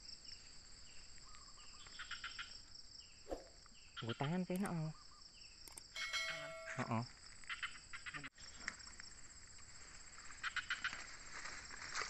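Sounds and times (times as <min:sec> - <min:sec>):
insects droning: 0:00.0 - 0:12.0
leaves and vines rustling: 0:06.5 - 0:12.0.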